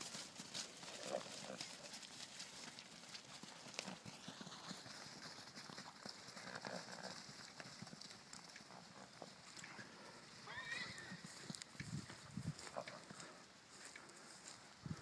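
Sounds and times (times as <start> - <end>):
horse hooves on grass: 0.0 - 15.0.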